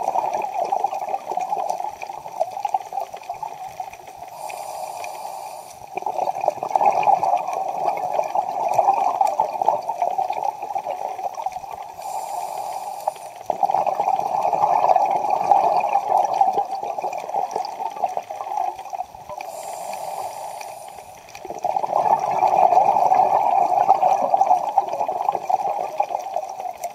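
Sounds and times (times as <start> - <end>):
exhaled air bubbling: 0.0 - 26.9
scuba regulator inhale hiss: 4.3 - 5.9, 11.9 - 13.5, 19.4 - 21.4.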